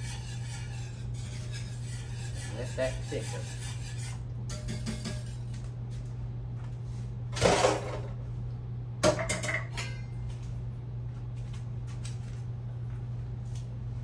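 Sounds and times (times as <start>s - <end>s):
metal utensil scraping a pot: 0.0s - 5.5s.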